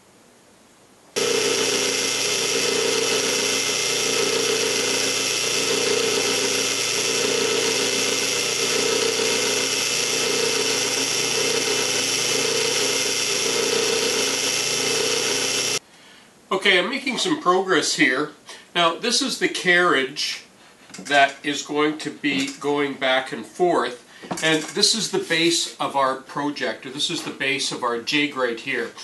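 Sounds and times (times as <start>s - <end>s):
drill press motor whirring: 1.2s - 15.8s.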